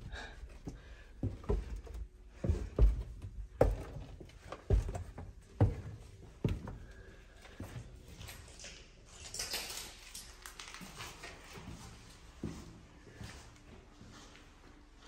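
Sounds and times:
slow footsteps thudding: 0.6 - 7.0.

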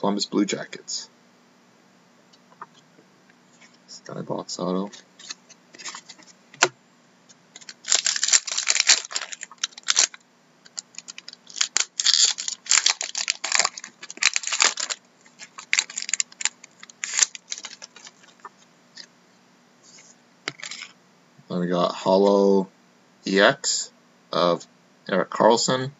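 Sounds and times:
foil wrapper tearing and crinkling: 7.6 - 18.4.

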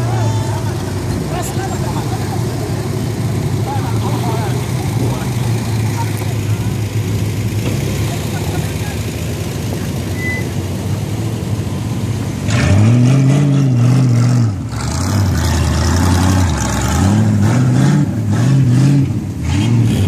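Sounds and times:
engine revving: 12.3 - 20.0.

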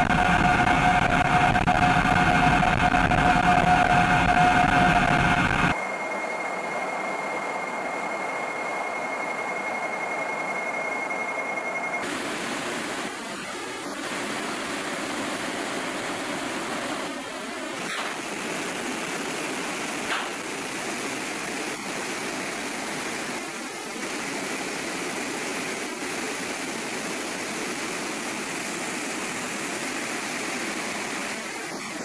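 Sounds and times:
high steady whine: 0.0 - 32.0.

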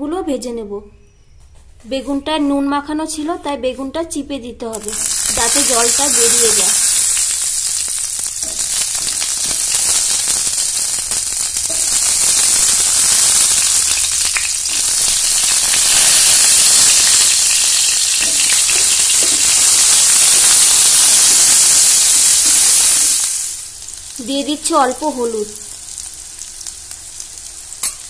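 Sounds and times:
eggplant sizzling in hot oil: 4.7 - 28.0.

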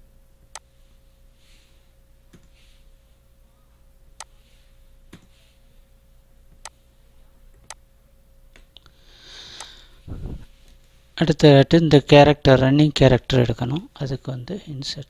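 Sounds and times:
faint electrical hum: 0.0 - 15.0.

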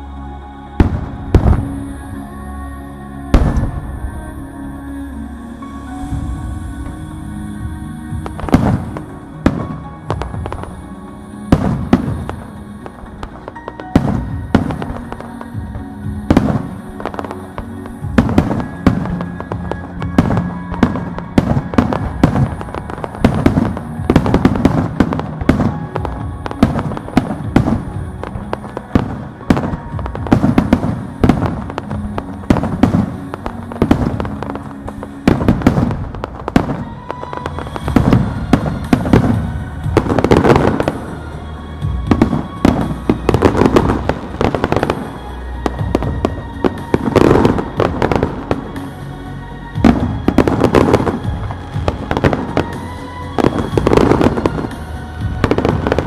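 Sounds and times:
music playing: 0.0 - 56.0
fireworks bursting: 0.8 - 2.2, 3.3 - 4.3, 6.0 - 56.0.

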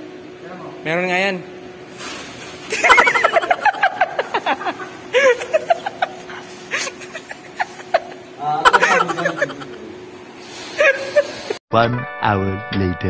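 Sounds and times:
stifled giggling: 2.7 - 9.9
faint steady hum: 2.7 - 11.6.

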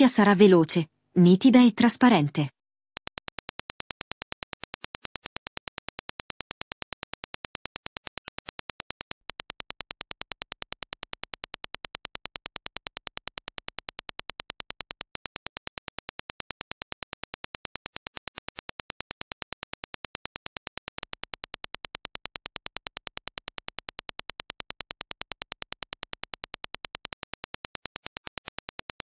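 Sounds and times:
rapid test clicks: 3.0 - 29.0.

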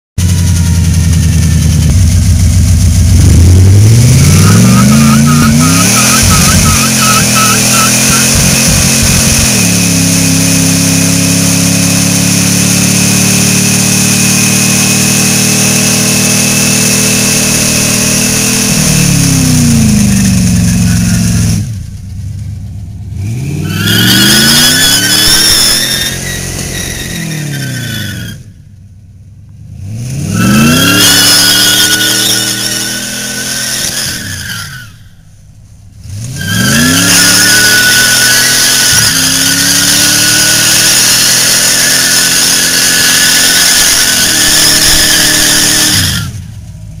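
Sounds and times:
car engine revving: 0.2 - 28.6, 29.6 - 47.0
tyres spinning: 3.2 - 10.4, 23.6 - 28.5, 36.3 - 46.4.

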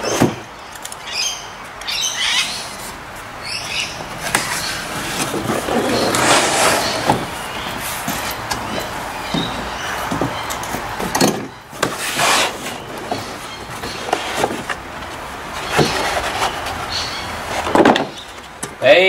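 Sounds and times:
cardboard packaging scraping and rustling: 4.0 - 18.6.

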